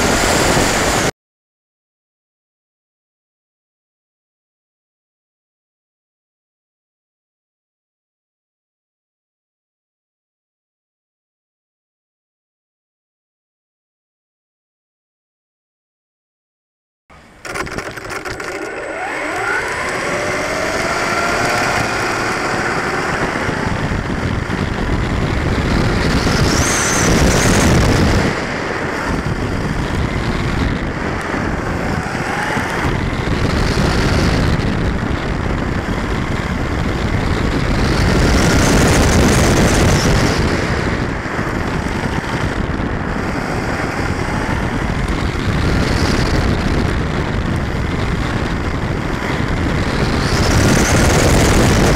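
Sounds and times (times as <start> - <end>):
tyre and wind noise: 0.0 - 1.1, 17.1 - 51.9
electric motor whine: 17.1 - 46.7.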